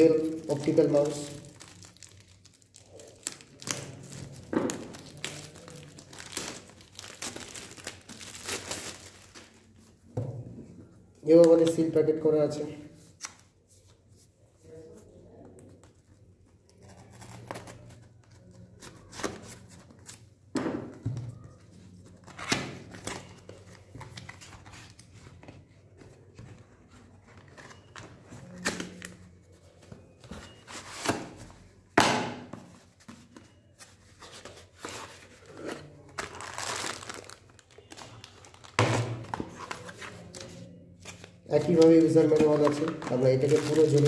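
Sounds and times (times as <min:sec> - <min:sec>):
plastic packaging crinkling: 0:00.4 - 0:09.8, 0:34.6 - 0:40.5, 0:41.1 - 0:44.0.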